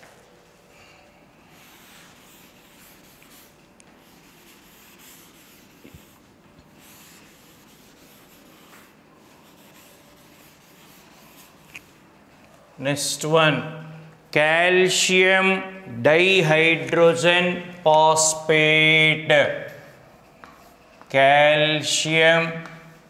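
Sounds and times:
eraser rubbing on a blackboard: 1.5 - 12.1.

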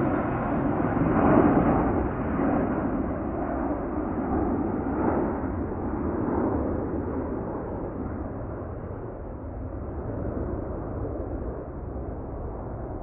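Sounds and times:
jet airliner rumble overhead: 0.0 - 13.0.

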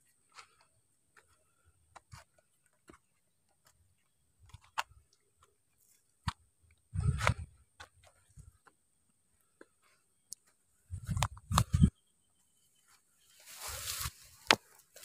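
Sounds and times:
footsteps on rocky dirt path: 0.0 - 8.8, 13.4 - 15.0.

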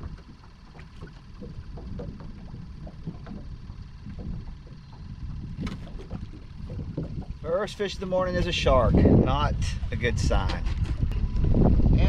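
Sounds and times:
small splashes and ticks: 0.0 - 7.5
water lapping against boat hull: 0.0 - 12.0
wind rumble on microphone: 0.0 - 12.0.

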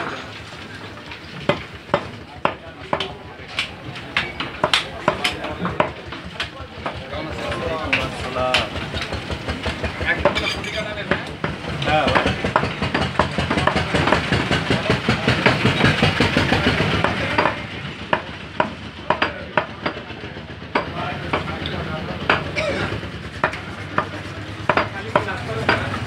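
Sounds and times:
blade chopping meat on wooden block: 1.4 - 7.0, 23.4 - 26.0.

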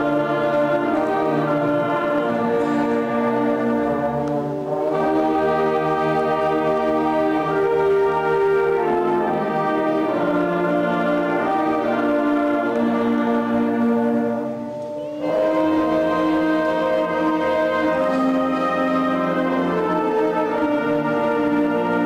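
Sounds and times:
concert band playing slow chords: 0.0 - 22.0.

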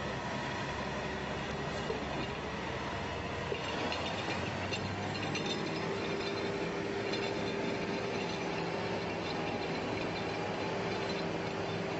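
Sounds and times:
winch mechanical drone: 0.0 - 11.9
winch whine: 0.9 - 11.9.

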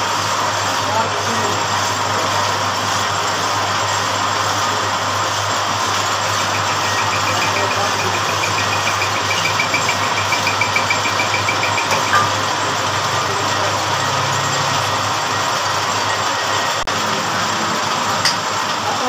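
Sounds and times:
lathe motor hum: 4.1 - 17.1
rapid regular ticking: 5.9 - 12.5.

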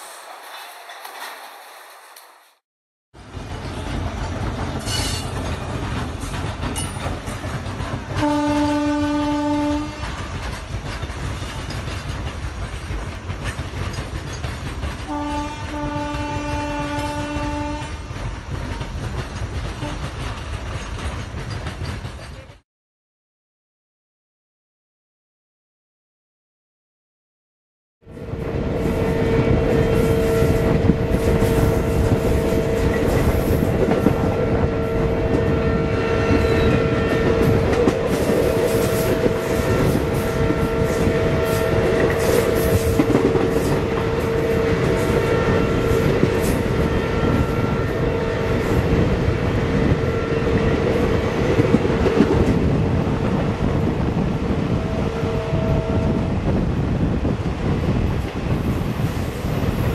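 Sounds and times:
train wheels rumbling on rails: 0.0 - 2.6, 3.2 - 22.6, 28.1 - 59.9
wheels clicking over rail joints: 0.0 - 2.6, 3.4 - 8.3, 9.8 - 17.2, 17.8 - 22.6.

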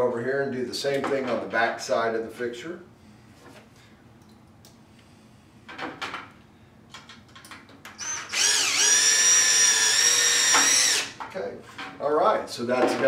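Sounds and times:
cordless drill whining: 8.0 - 11.2.

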